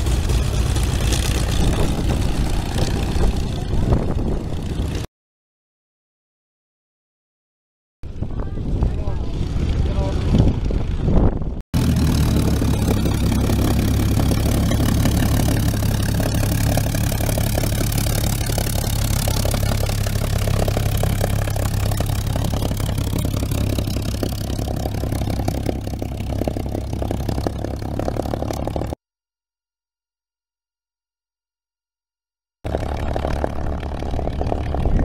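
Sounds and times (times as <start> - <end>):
airplane piston engine idling: 11.8 - 29.0.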